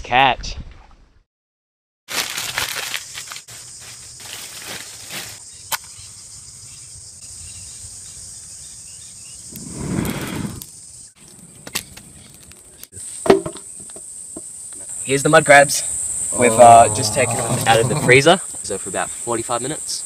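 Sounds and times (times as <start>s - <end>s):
person blowing on embers: 9.5s - 10.8s
insect chorus trilling: 13.0s - 20.0s.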